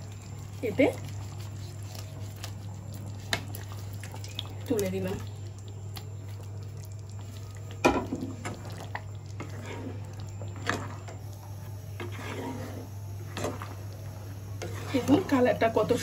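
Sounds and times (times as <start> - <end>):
wet squelching of gravy: 0.6 - 7.8.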